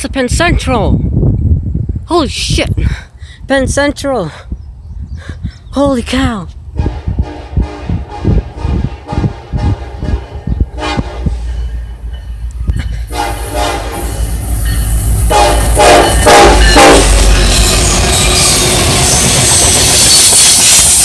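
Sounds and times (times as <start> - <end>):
train horn blasts: 6.8 - 11.5, 13.1 - 14.4, 15.1 - 19.6.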